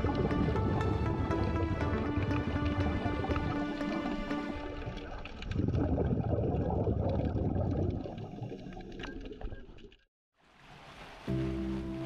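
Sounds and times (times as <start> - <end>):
underwater bubbling and rushing: 0.0 - 12.0
underwater clicks: 1.4 - 6.1.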